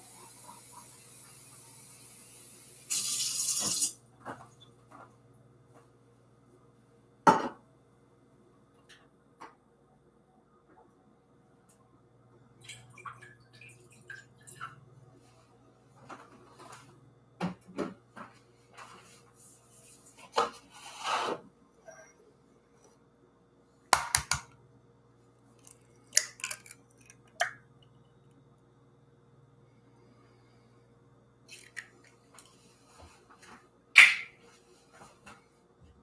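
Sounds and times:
egg cracking: 25.6 - 27.9, 31.5 - 32.5.

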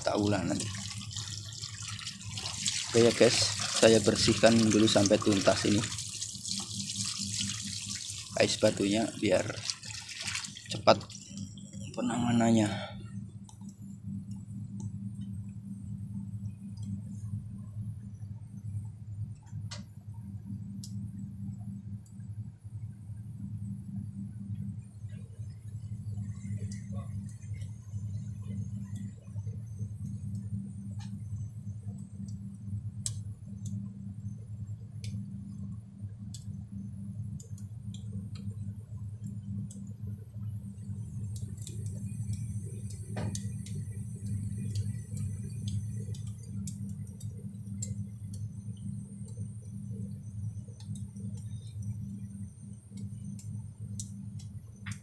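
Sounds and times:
water hose rinsing ice: 0.0 - 11.4
water dripping: 0.0 - 15.6, 24.5 - 36.7, 37.3 - 55.0
steady low hum: 0.0 - 55.0.

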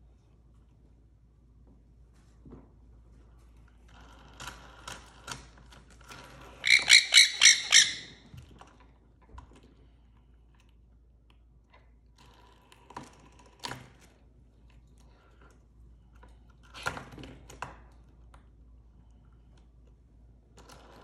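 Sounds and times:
parrot squawking: 6.6 - 8.2.

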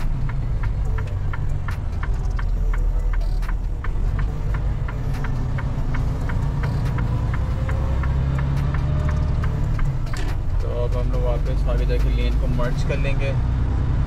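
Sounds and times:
even ticking: 0.0 - 13.1
diesel truck engine rumble: 0.0 - 14.0.

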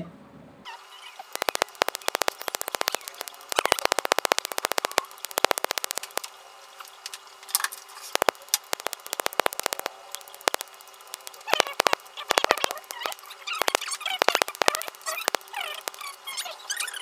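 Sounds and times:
laser handpiece snapping pulses: 1.2 - 6.4, 8.1 - 16.5.

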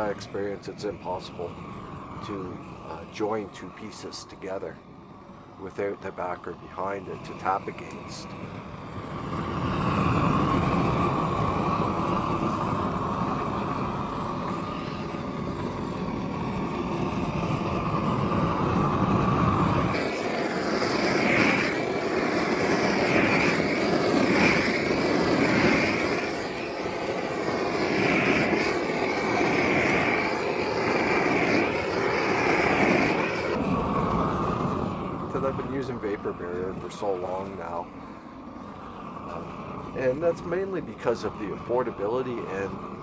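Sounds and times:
roofing torch flame rushing: 0.0 - 43.0.

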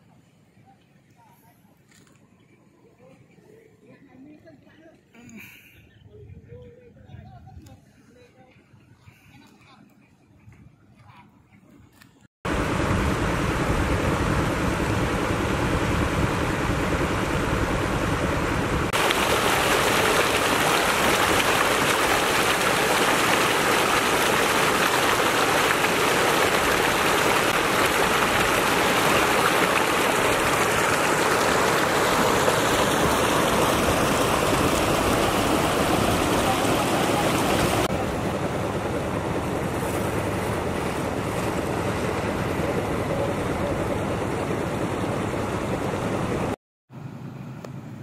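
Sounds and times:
floodwater rushing and splashing: 12.5 - 44.5.

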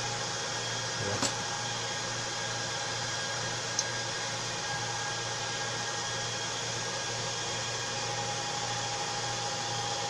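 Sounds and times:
cooling fan whirring: 0.0 - 10.0
thin steady whine: 0.0 - 10.0.

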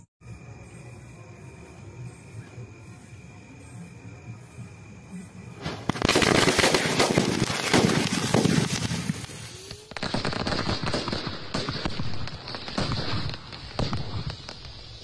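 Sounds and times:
firecrackers banging and crackling: 5.6 - 15.0.

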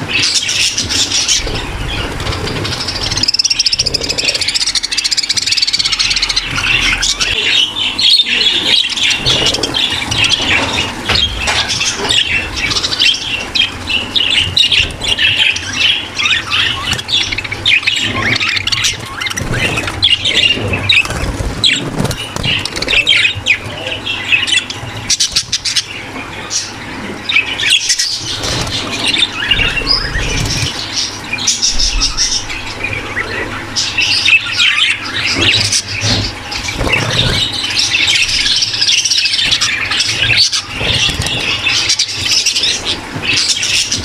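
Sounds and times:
budgerigars chattering: 0.0 - 44.0.

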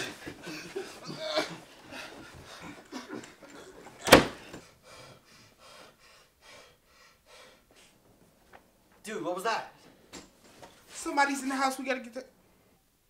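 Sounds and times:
breathing: 4.4 - 8.0.

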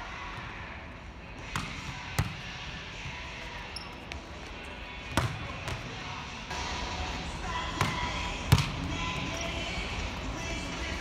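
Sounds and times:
ball hitting hardwood court: 5.2 - 5.9, 7.8 - 8.8.

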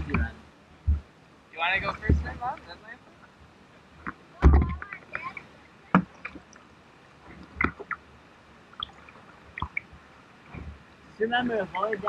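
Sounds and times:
water gurgling around hull: 0.0 - 12.0
paddle splashing in water: 4.0 - 10.9.

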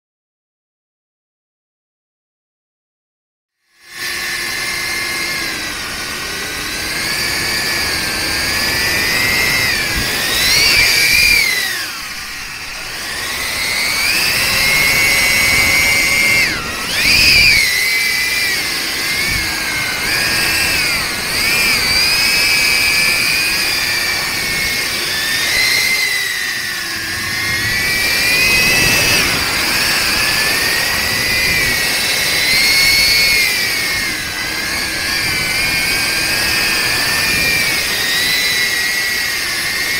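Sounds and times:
drone motors whining: 3.6 - 39.9.

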